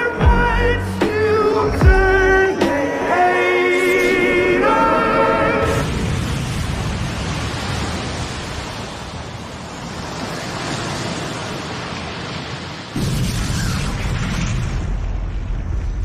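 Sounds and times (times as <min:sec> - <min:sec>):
waves surging: 0:00.0 - 0:14.9
loud boom: 0:13.0 - 0:16.0.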